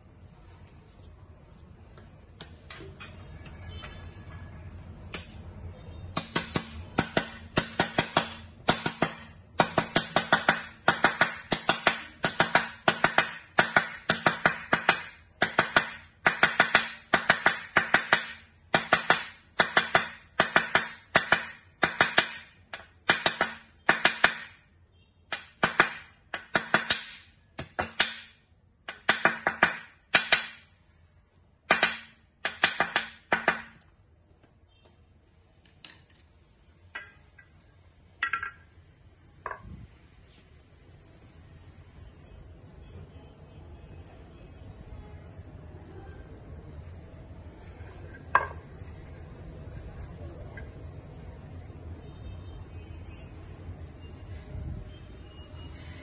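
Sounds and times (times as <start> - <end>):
hammer striking metal: 5.1 - 5.5, 6.2 - 24.6, 38.2 - 38.8.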